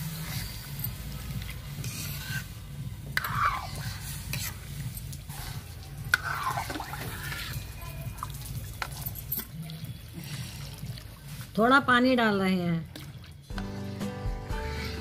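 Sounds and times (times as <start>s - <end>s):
liquid splashing and dripping: 4.7s - 11.8s, 12.7s - 13.6s.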